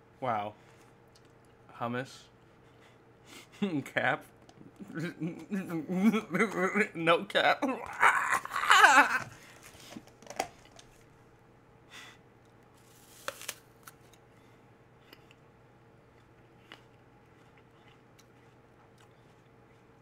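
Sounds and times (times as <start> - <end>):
chewing mouth noise: 16.1 - 20.0.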